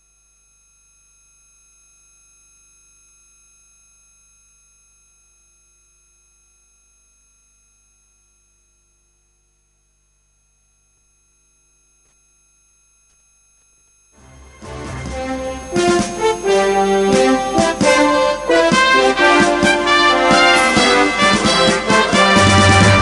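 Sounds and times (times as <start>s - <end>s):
electrical hum and whine: 0.0s - 23.0s.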